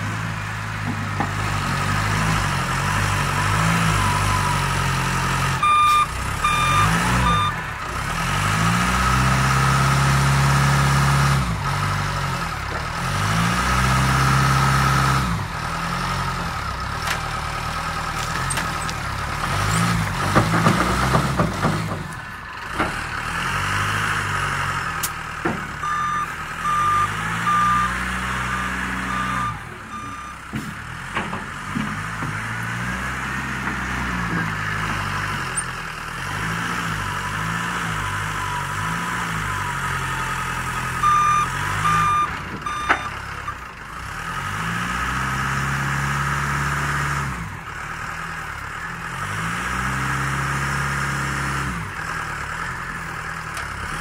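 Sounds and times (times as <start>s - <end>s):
wheel loader engine revving: 0.0s - 54.0s
reversing beeps: 3.2s - 4.8s, 5.6s - 7.6s, 25.8s - 30.5s, 39.5s - 43.2s.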